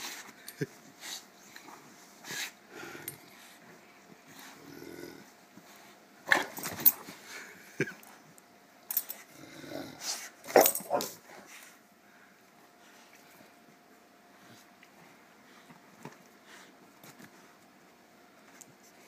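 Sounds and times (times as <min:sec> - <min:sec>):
dogs growling: 0:04.3 - 0:05.4, 0:09.2 - 0:11.2.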